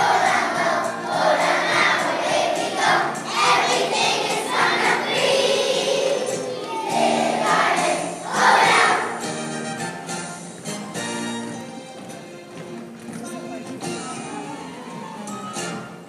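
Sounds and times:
children singing together: 0.0 - 9.4.

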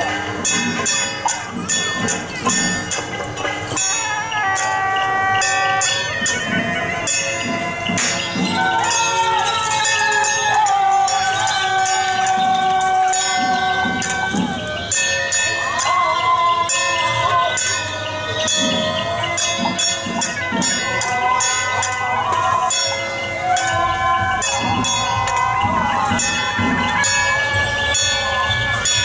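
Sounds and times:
drum beats: 0.0 - 29.0
metallic jingling: 5.6 - 22.1.

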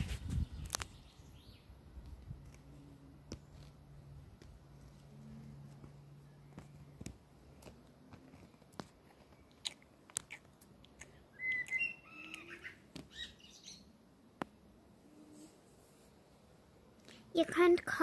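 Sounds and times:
high chirping squeaks: 11.3 - 13.8.

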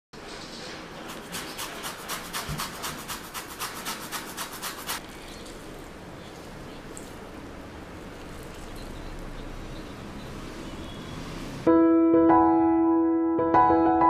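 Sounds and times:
orange peel rasping on grater: 1.1 - 5.0.

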